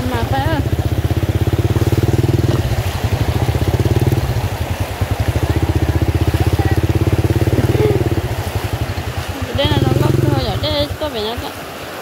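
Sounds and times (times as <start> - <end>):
motorcycle engine running: 0.0 - 11.4.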